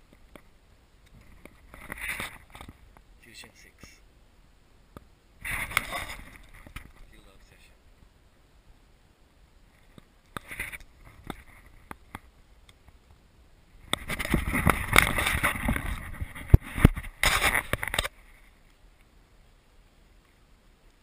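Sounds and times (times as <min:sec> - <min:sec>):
camera handling noise: 0:13.9 - 0:18.2
gear scraping and knocking: 0:14.0 - 0:18.1.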